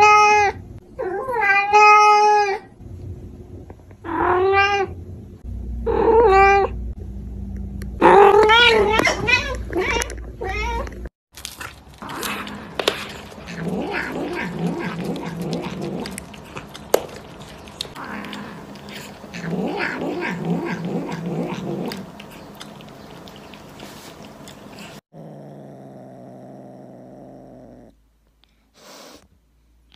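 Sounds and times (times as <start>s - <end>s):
cats growling yowls: 12.0s - 23.5s.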